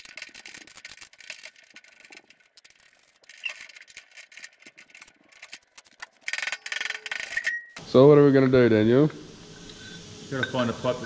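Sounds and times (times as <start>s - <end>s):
metal tools and bolts rattling: 0.0s - 7.8s.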